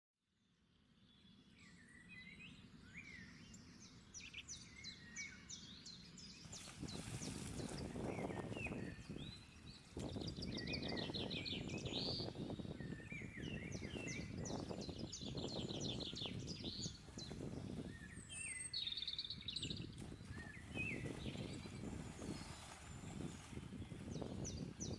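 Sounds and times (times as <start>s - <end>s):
birds chirping: 1.0s - 24.9s
water splashing around wading legs: 6.4s - 8.2s, 20.0s - 24.1s.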